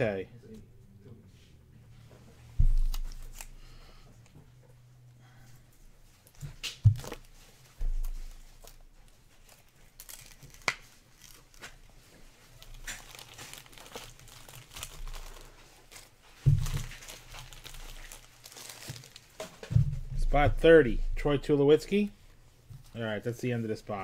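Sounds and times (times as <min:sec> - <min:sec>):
dull thump: 0:02.6 - 0:03.2
foil wrapper crinkling: 0:02.6 - 0:03.8, 0:06.2 - 0:11.9, 0:12.5 - 0:19.6.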